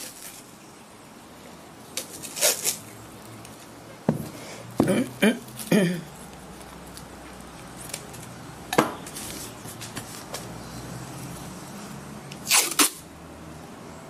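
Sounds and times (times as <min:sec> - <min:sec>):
masking tape ripped off roll: 0:00.0 - 0:00.5, 0:02.0 - 0:02.9, 0:12.3 - 0:13.1.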